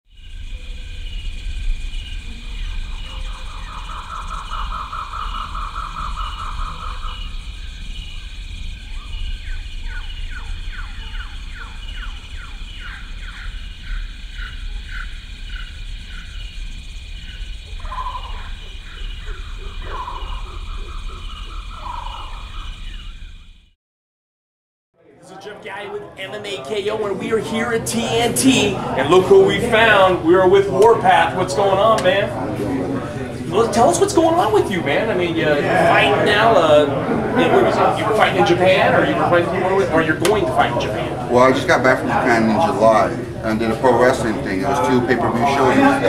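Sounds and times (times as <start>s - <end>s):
deep bass: 0.1s - 23.7s
pulsing high tone: 0.1s - 23.7s.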